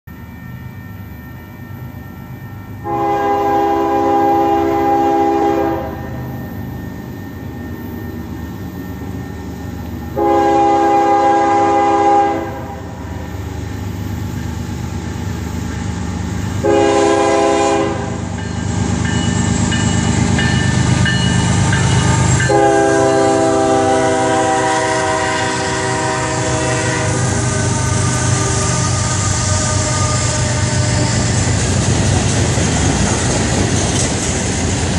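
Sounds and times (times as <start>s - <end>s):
diesel and rail rumble: 0.1s - 34.9s
locomotive air horn blasts: 2.8s - 6.2s, 10.1s - 13.3s, 16.6s - 18.3s, 22.4s - 31.4s.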